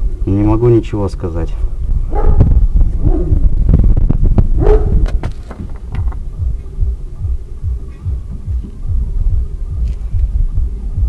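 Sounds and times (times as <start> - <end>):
suspension thudding: 4.7 - 6.6.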